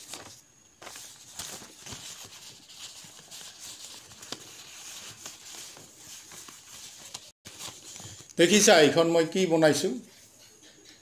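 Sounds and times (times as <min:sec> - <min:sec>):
paper being folded: 0:00.0 - 0:08.4.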